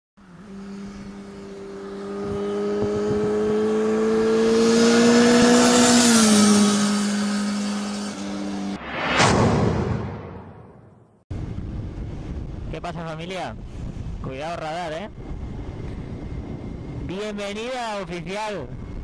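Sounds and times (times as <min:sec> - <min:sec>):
motorcycle passing by: 0:00.2 - 0:09.2.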